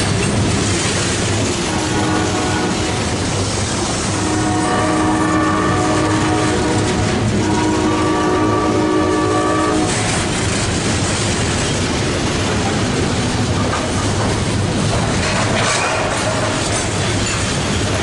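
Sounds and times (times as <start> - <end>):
rail cars rolling on rails: 0.0 - 18.0
multi-chime locomotive horn: 1.6 - 3.2, 4.0 - 10.2.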